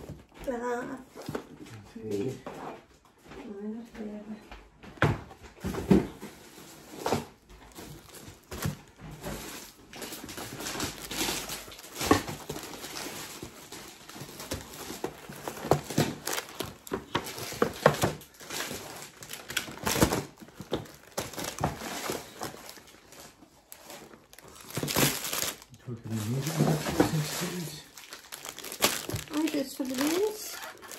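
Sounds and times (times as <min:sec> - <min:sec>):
plastic wrappers crinkling: 0:06.3 - 0:30.9.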